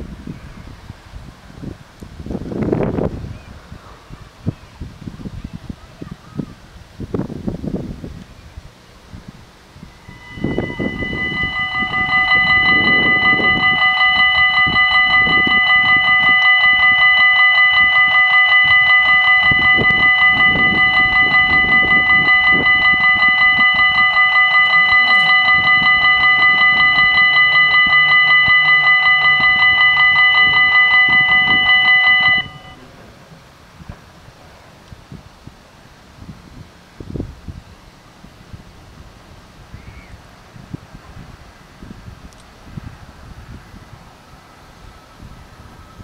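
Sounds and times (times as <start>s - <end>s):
level crossing warning bells: 9.9s - 32.9s.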